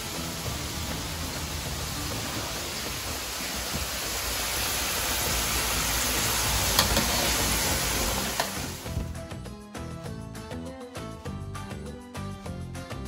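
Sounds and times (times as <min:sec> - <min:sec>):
chips sizzling in hot oil: 0:00.0 - 0:09.0.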